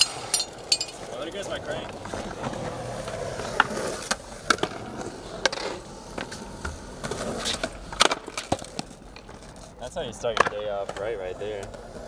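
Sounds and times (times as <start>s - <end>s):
skateboard wheels rolling on concrete: 0.0s - 12.0s
skateboard clacks and knocks: 1.8s - 9.5s, 10.1s - 12.0s.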